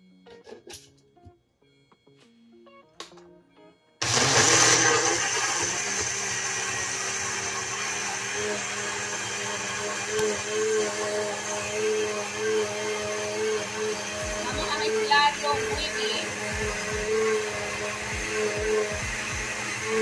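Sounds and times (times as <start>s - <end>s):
blender running: 4.0s - 20.0s
faint background music: 13.8s - 20.0s.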